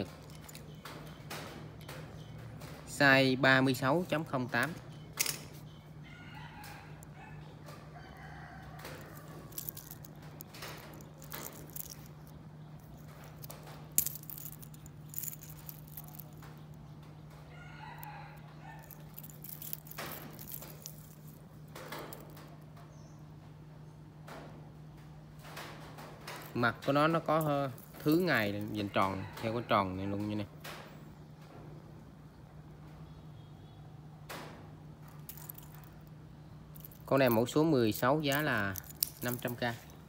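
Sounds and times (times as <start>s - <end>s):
sharp clicks and knocks: 0.0s - 3.0s, 8.7s - 18.1s, 18.8s - 22.8s, 25.0s - 29.1s, 36.7s - 40.0s
rooster crowing: 6.0s - 9.6s, 17.5s - 19.2s.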